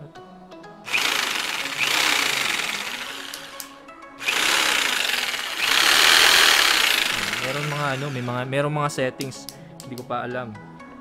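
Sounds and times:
electric jigsaw running: 0.9 - 8.4.

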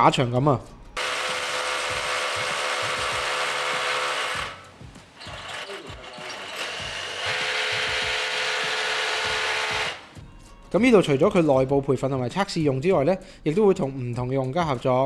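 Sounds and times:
rotary hammer drilling into concrete: 1.0 - 10.2.

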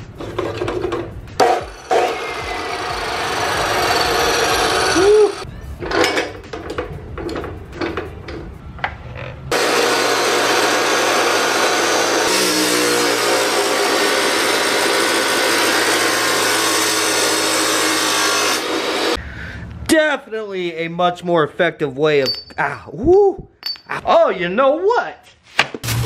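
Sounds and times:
chop saw grinding metal: 1.4 - 5.4, 9.5 - 19.2.

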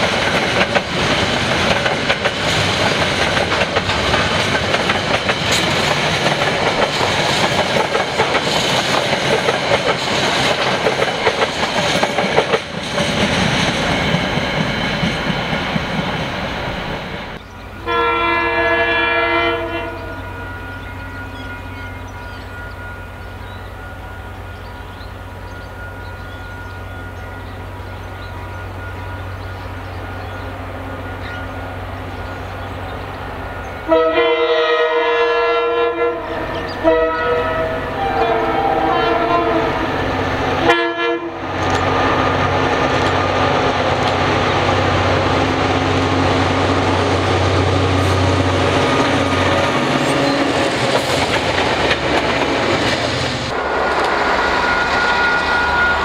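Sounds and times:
locomotive engine hum: 0.0 - 56.0
train wheel noise: 0.0 - 56.0
locomotive horn blasts: 17.8 - 23.2, 33.8 - 41.5, 54.4 - 56.0.

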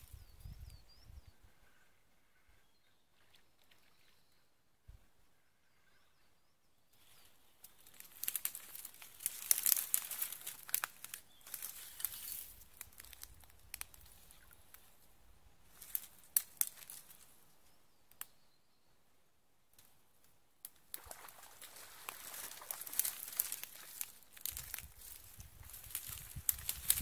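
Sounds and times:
close rustling and crinkling: 7.0 - 15.0, 21.0 - 27.0.

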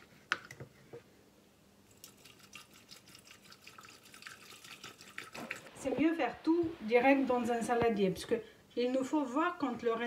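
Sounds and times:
water pouring into a glass carafe: 2.0 - 5.7.

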